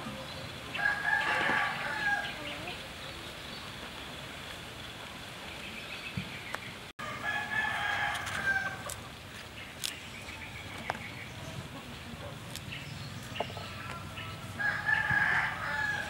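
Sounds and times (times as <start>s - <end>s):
rooster crowing: 0.8s - 2.5s, 7.0s - 8.9s, 13.6s - 16.0s.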